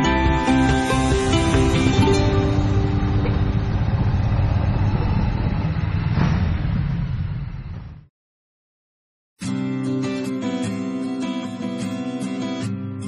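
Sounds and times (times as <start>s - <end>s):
rushing noise: 0.2s - 8.1s
motorcycle engine rumble: 0.4s - 8.1s.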